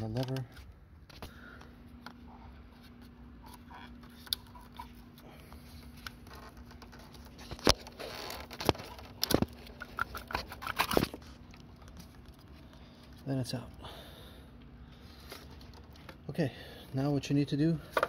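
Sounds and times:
plastic connector scraping and rattling: 2.8 - 5.2, 5.8 - 12.7.

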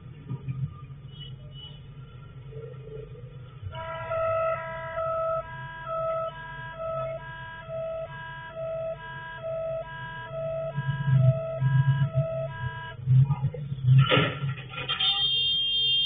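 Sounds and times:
low steady hum: 1.6 - 14.1
two-tone warning siren: 3.7 - 13.1, 15.0 - 16.0.

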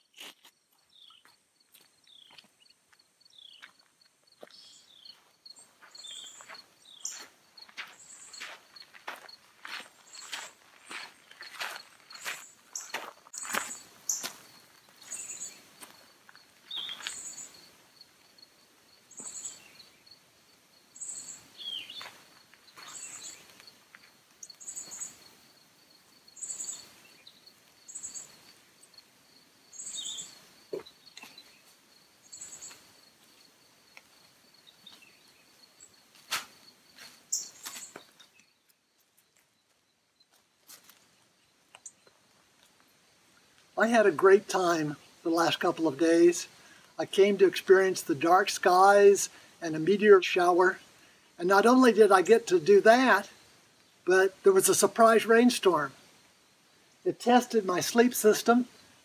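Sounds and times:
bird chirps: 0.8 - 1.4, 2.0 - 3.8, 4.4 - 9.3, 10.0 - 15.6, 16.3 - 17.6, 19.1 - 20.2, 21.0 - 23.5, 24.4 - 25.2, 26.4 - 28.5, 29.7 - 32.8, 37.3 - 38.8
footsteps in leaf litter: 5.8 - 15.9.

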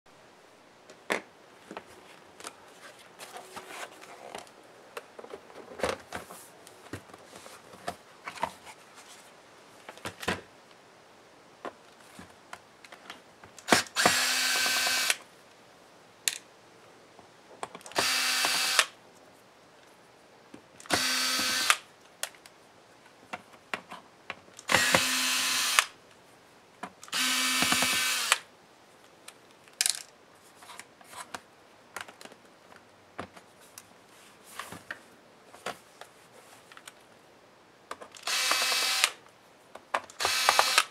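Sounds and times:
electric screwdriver running: 13.7 - 15.2, 18.0 - 18.9, 20.9 - 21.8, 24.7 - 25.9, 27.1 - 28.4, 38.2 - 39.2, 40.2 - 40.9
clicks and knocks of handling: 29.2 - 33.9.

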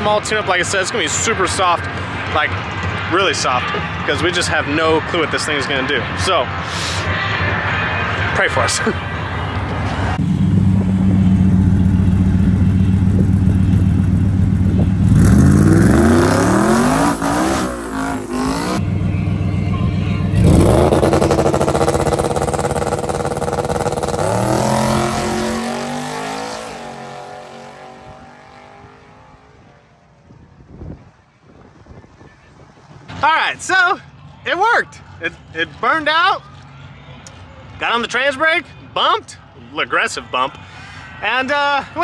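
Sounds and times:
truck engine revving and launching: 15.0 - 18.8, 20.4 - 29.5.

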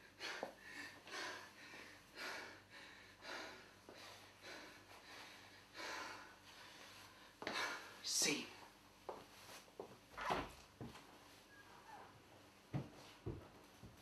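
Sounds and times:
person breathing hard: 0.0 - 8.0.

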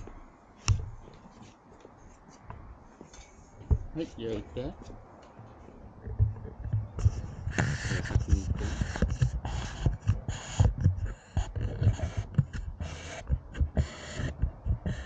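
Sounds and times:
low thuds: 3.6 - 15.0
dog panting: 7.0 - 15.0.

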